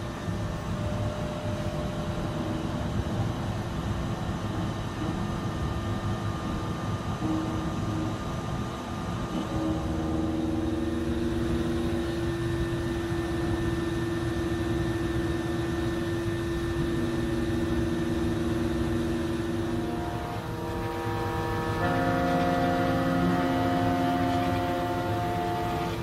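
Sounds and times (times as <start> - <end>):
constant noisy wash: 0.0 - 26.0
milling machine humming: 0.0 - 26.0
sustained shifting machine tones: 0.0 - 26.0.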